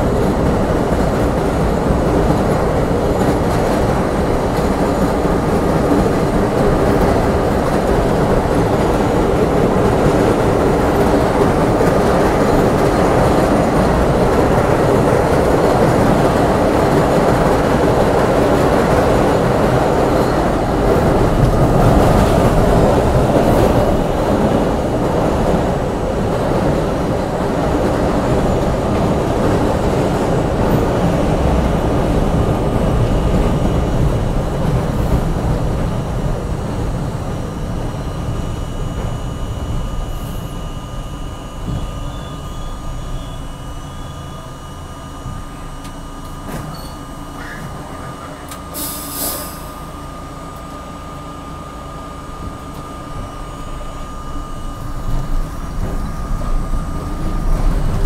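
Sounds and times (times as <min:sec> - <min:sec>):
steady high whine: 0:00.0 - 0:58.0
train wheels rumbling on track: 0:00.0 - 0:58.0
brief hiss: 0:48.7 - 0:49.8.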